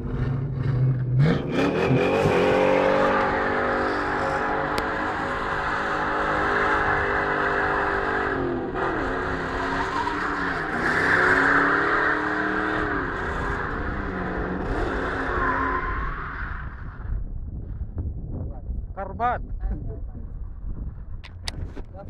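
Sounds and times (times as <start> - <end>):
car engine revving: 0.0 - 16.2
tyres screeching on asphalt: 0.6 - 17.1.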